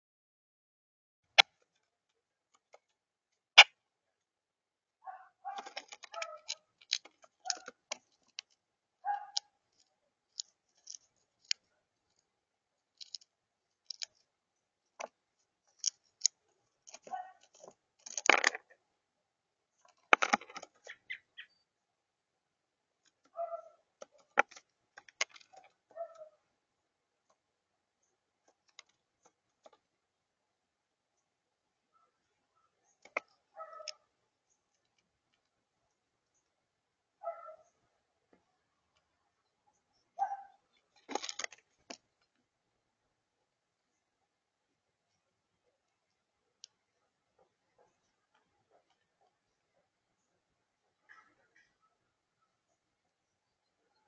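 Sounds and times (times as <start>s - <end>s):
crackling crunches: 5.1s - 12.2s, 40.9s - 42.0s
bird beak pecking shells: 5.5s - 12.2s, 12.9s - 14.3s, 14.9s - 18.8s, 19.8s - 21.5s, 24.0s - 25.8s.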